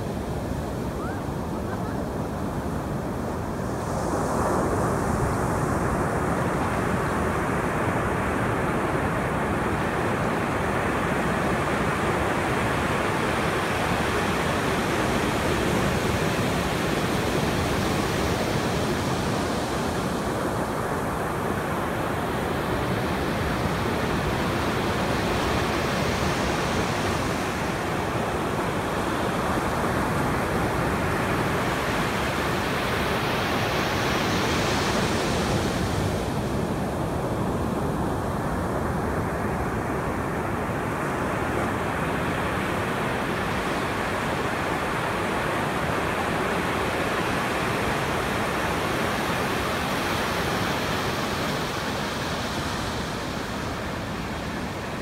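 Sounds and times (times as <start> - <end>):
ocean surf on a beach: 0.0 - 55.0.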